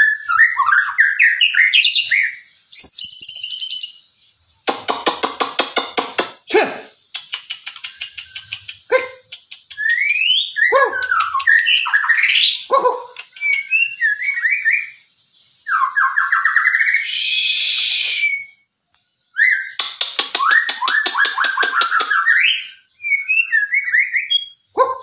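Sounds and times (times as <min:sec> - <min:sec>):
bird singing whistled notes: 0:00.0 - 0:04.5, 0:07.0 - 0:25.0
bird clicking trills: 0:04.6 - 0:06.4, 0:07.0 - 0:14.0, 0:19.6 - 0:22.5.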